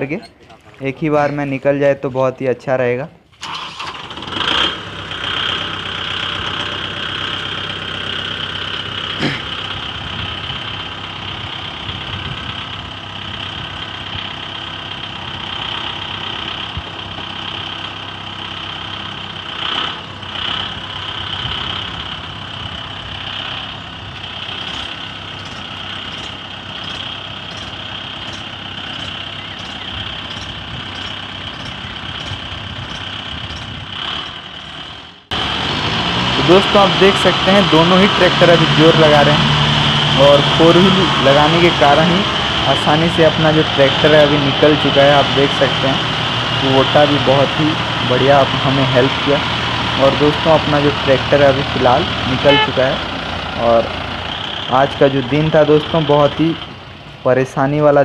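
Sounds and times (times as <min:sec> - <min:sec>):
diesel tractor engines under load: 0:00.0 - 0:58.0
constant high whine: 0:03.3 - 0:35.4.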